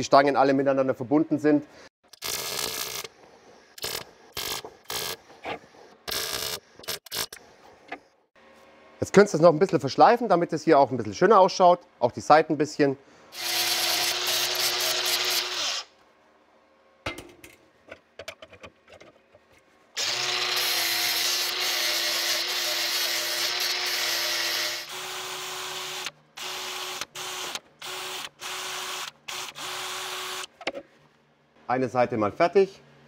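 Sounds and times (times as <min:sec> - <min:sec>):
angle grinder grinding metal: 0:13.4 - 0:15.9, 0:20.0 - 0:30.5
cordless drill with wire brush: 0:13.4 - 0:15.9, 0:20.0 - 0:30.5.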